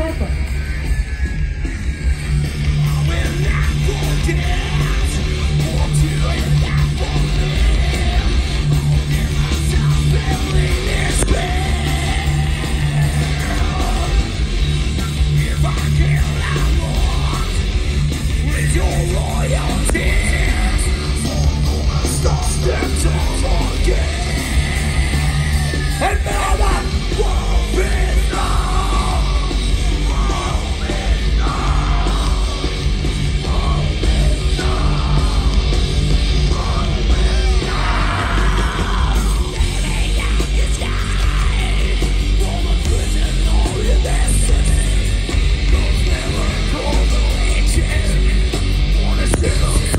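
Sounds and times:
heavy metal band playing live: 0.0s - 49.9s
screamed vocal: 37.4s - 40.1s.

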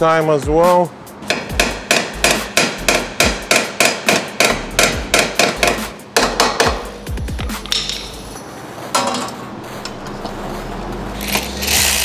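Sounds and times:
hammer striking metal: 1.2s - 8.2s.

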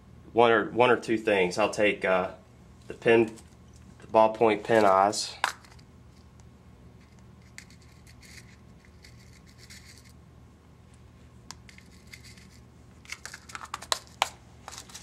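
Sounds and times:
sharp clicks and crinkles: 11.5s - 15.0s
hands rustling materials: 11.6s - 15.0s.

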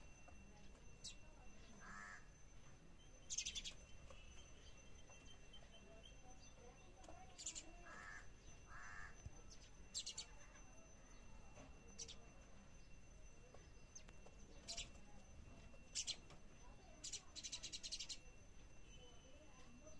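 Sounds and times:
sparrows chirping: 0.0s - 2.2s, 3.0s - 19.9s.

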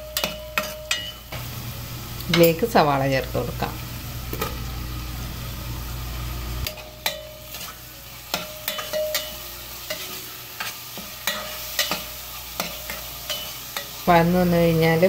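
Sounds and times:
onion sizzling in oil: 0.0s - 15.0s
steel spoon scraping pot: 0.2s - 1.4s, 6.6s - 14.0s
low hum: 1.3s - 6.7s.

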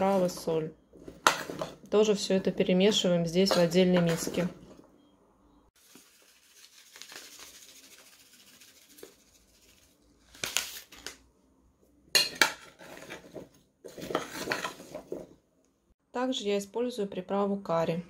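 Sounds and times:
spoon scraping and clinking bowl: 3.4s - 4.5s, 12.2s - 15.0s
seasoning shaken from packet: 5.8s - 10.0s.

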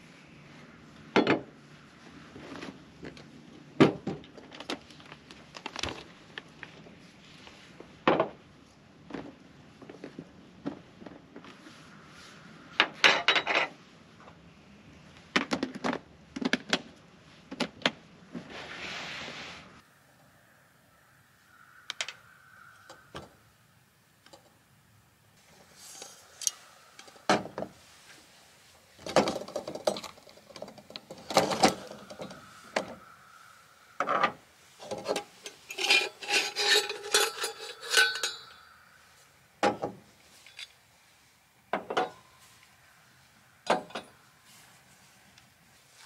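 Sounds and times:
pots and utensils clinking: 34.9s - 38.8s.

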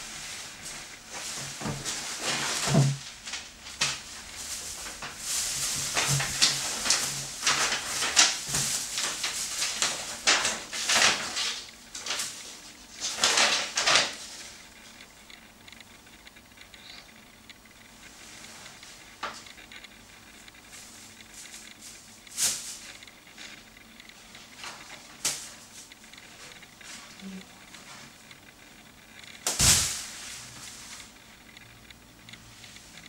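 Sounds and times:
plastic bags and paper rustling: 0.0s - 15.0s, 20.6s - 28.2s, 29.4s - 31.2s.

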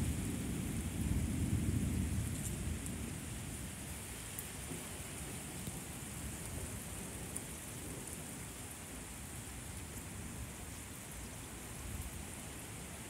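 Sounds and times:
low thunder rumble: 0.0s - 4.0s
steady rain on pavement: 0.0s - 13.0s.

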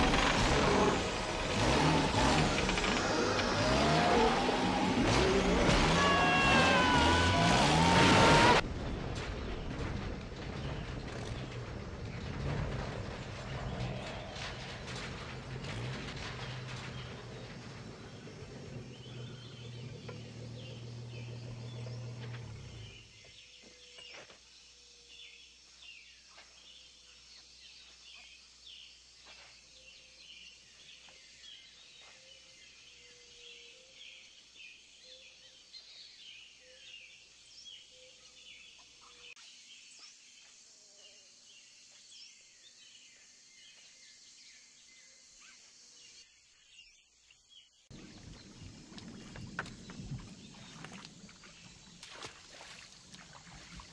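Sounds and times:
low rumble: 0.0s - 23.0s
water splashing: 47.9s - 53.9s.

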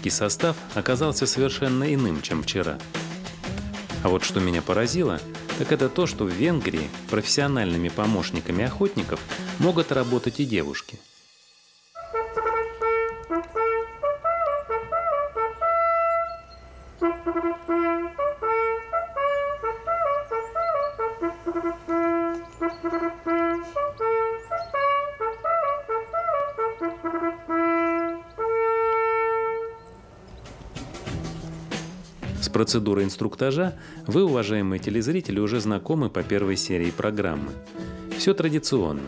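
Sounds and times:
hunting horn melody: 12.0s - 30.1s.

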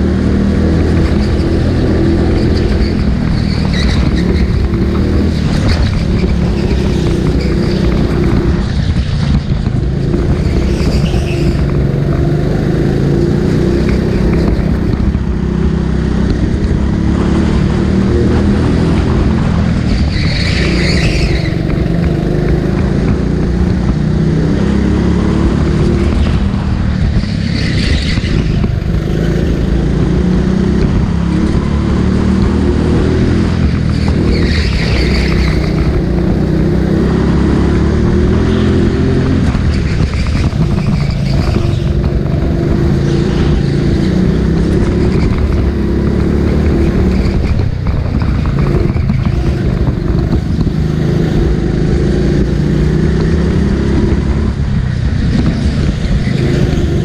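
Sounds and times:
go-kart engine running hard: 0.0s - 57.0s.

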